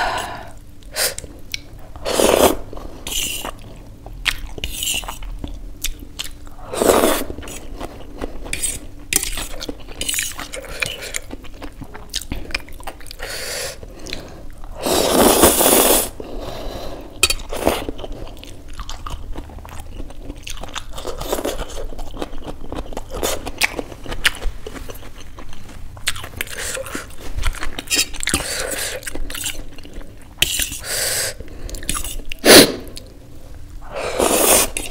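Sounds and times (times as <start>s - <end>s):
noodle slurping: 33.9s - 34.9s.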